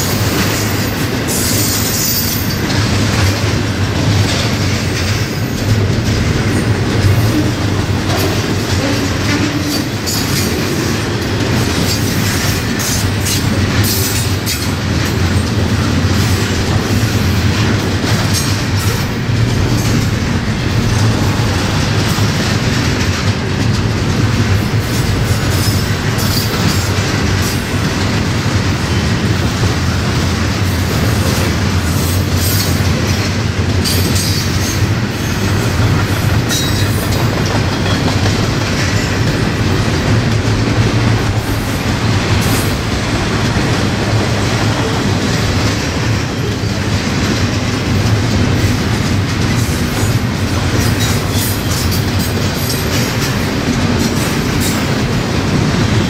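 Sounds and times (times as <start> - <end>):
steel wheels rumbling on rail: 0.0 - 56.0
wheels clacking over rail joints: 0.0 - 56.0.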